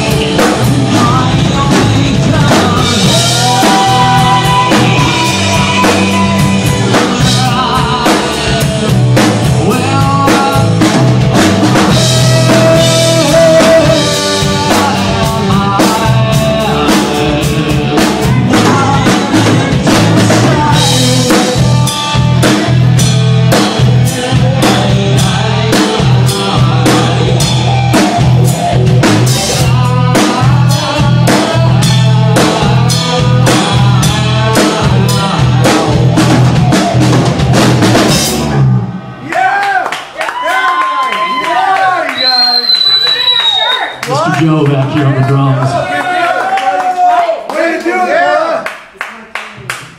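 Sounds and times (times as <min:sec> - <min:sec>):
drum kit beat: 0:00.0 - 0:38.8
live band playing: 0:00.0 - 0:39.2, 0:42.2 - 0:45.8
bass line: 0:00.0 - 0:39.3, 0:42.6 - 0:45.9.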